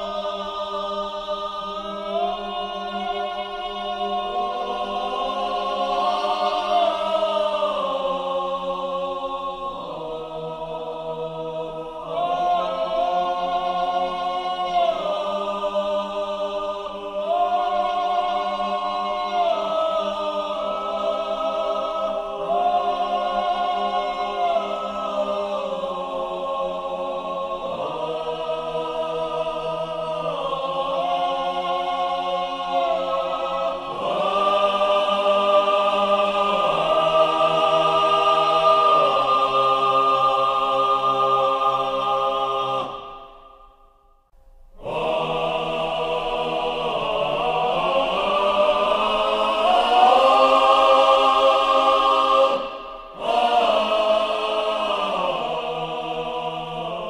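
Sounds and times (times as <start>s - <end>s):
choir singing held chords: 0.0s - 57.0s.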